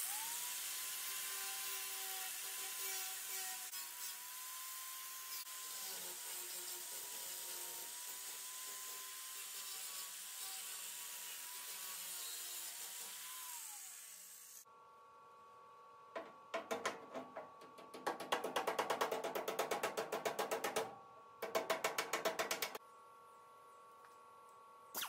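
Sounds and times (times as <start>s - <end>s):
power grinder on sheet metal: 0.0s - 14.6s.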